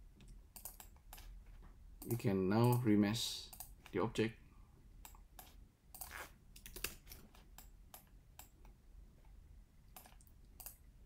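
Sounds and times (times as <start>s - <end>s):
keyboard and mouse clicks: 0.2s - 1.4s, 3.5s - 4.0s, 5.0s - 8.8s, 9.9s - 10.8s.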